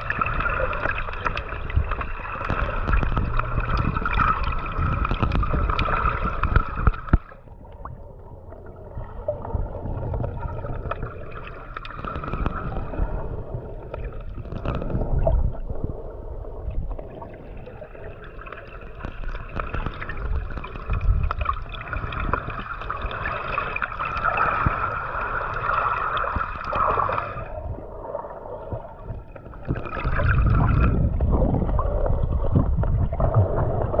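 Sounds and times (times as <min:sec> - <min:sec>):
underwater sloshing and gurgling: 0:00.0 - 0:34.0.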